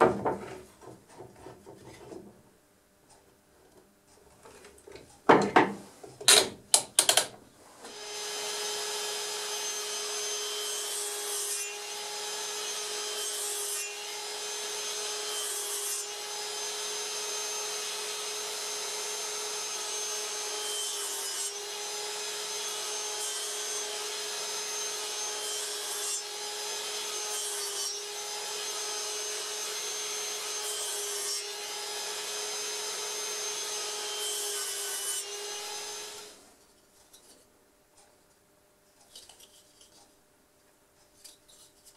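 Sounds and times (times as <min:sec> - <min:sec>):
saw blade scraping wood: 0:00.4 - 0:02.3.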